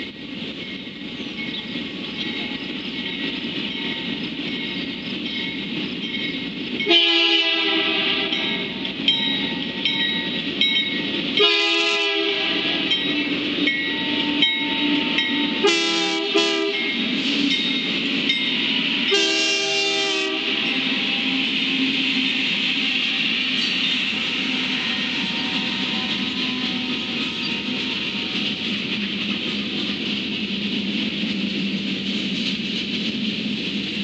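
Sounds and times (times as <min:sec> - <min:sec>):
diesel locomotive rumble: 0:00.0 - 0:34.0
crossing bell ringing: 0:00.5 - 0:07.1, 0:08.2 - 0:11.7, 0:12.7 - 0:19.6
locomotive air horn blasts: 0:06.9 - 0:08.6, 0:11.4 - 0:13.0, 0:14.0 - 0:17.0, 0:19.1 - 0:23.4, 0:24.3 - 0:28.2.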